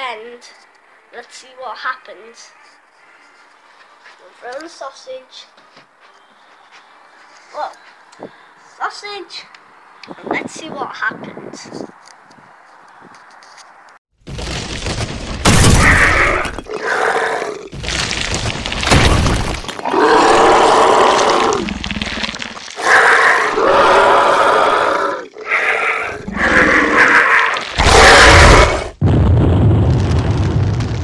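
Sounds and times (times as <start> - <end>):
monster roars and growls: 15.5 - 17.8, 18.8 - 29.0
explosion with low rumble: 29.0 - 31.0.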